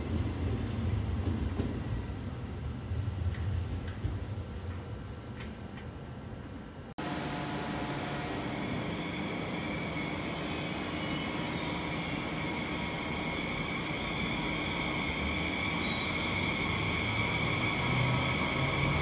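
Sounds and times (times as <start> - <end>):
electric train drive whine: 7.0 - 19.0
train rushing noise: 7.1 - 19.0.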